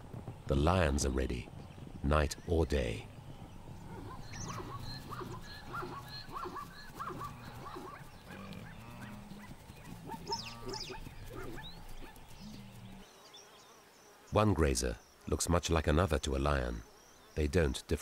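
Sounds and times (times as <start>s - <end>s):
short repeated animal calls: 3.9s - 12.8s.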